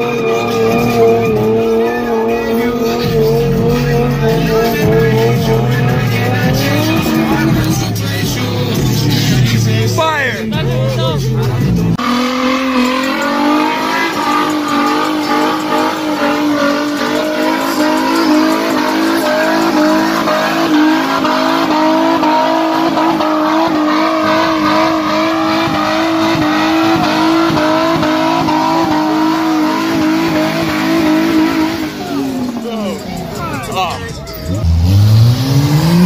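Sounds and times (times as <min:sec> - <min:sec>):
car engine revving high: 0:00.0 - 0:36.0
tyres squealing on pavement: 0:12.0 - 0:35.1.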